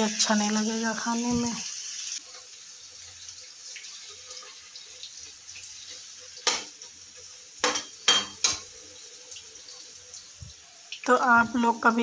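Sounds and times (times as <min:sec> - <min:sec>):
food sizzling in hot oil: 0:00.0 - 0:12.0
metal spatula knocking on pan: 0:07.6 - 0:08.7.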